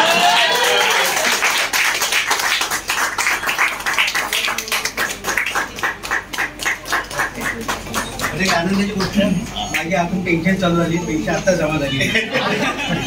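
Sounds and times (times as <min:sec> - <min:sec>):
people clapping: 0:00.0 - 0:09.9.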